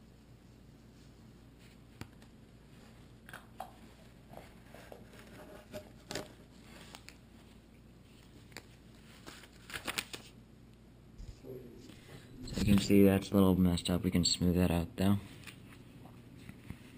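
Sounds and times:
tape peeling and rustling: 0:04.5 - 0:10.4.

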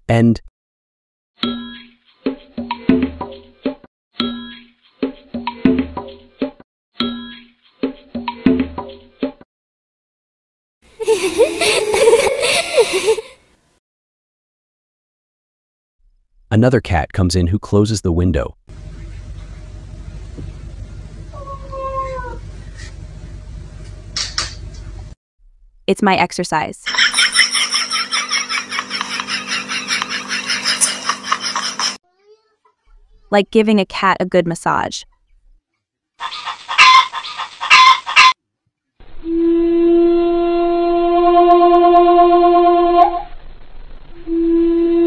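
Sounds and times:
steady low hum: 0:18.7 - 0:25.8
harsh squawking animal calls: 0:21.3 - 0:22.5, 0:36.2 - 0:38.4
cat meowing: 0:21.4 - 0:22.4
long horn-like note: 0:39.2 - 0:43.3, 0:44.3 - 0:45.0.

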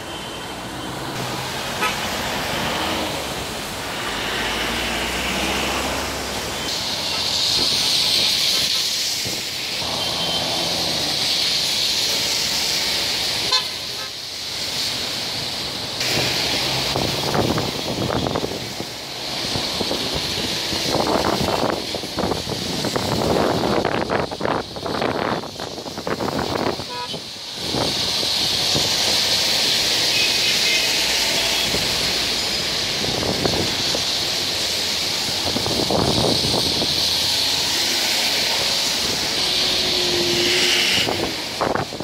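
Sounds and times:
city traffic: 0:00.0 - 0:42.0
car horns: 0:01.7 - 0:02.2, 0:09.8 - 0:10.8, 0:13.4 - 0:14.2, 0:26.8 - 0:27.3, 0:30.1 - 0:31.9, 0:39.3 - 0:41.4.

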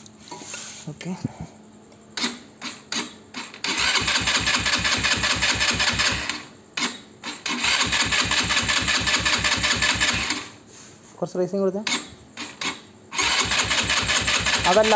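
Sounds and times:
electric starter cranking engine: 0:02.2 - 0:10.6, 0:11.9 - 0:14.9.

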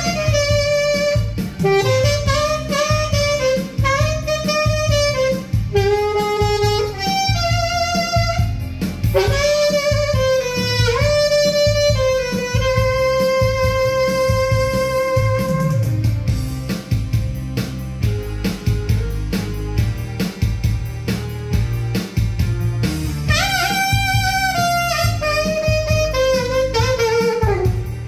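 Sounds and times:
saxophone playing slow melody: 0:00.0 - 0:16.3, 0:23.2 - 0:28.0
backing track with bass and drums: 0:00.0 - 0:28.0.

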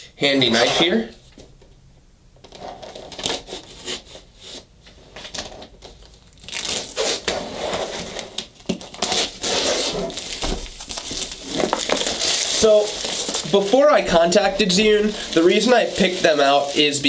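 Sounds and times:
plastic film tearing and crinkling: 0:02.5 - 0:04.3, 0:05.3 - 0:17.0
knife slitting plastic wrap: 0:06.4 - 0:17.0.

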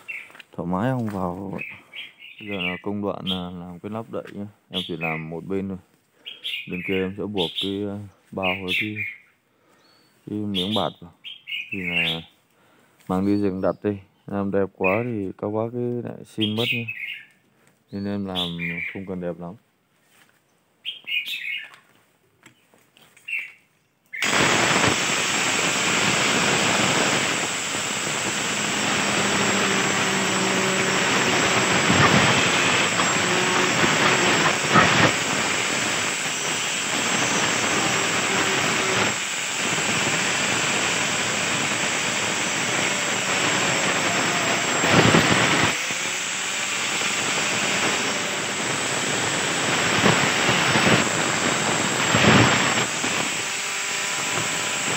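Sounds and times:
angle grinder cutting wood: 0:24.2 - 0:54.9.

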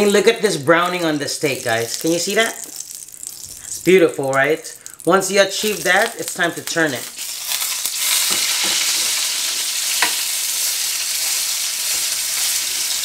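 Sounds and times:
steak sizzling in pan: 0:00.0 - 0:13.0.

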